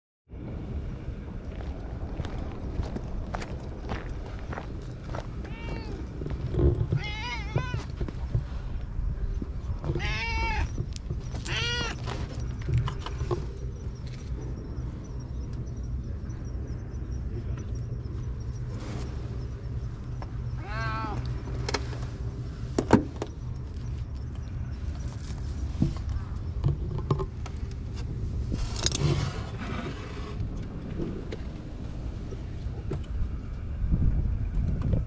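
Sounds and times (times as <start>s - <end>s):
low rumble: 0.3s - 35.0s
cat meowing: 5.4s - 6.1s, 6.9s - 7.9s, 9.9s - 10.7s, 11.4s - 12.0s, 20.6s - 21.3s.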